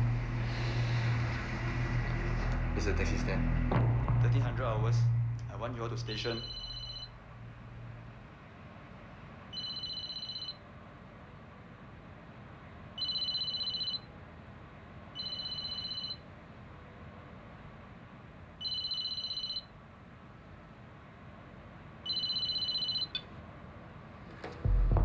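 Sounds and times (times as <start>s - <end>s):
electronic telephone ringing: 6.4s - 7.1s, 9.5s - 10.6s, 13.0s - 14.1s, 15.2s - 16.2s, 18.6s - 19.7s, 22.1s - 23.2s.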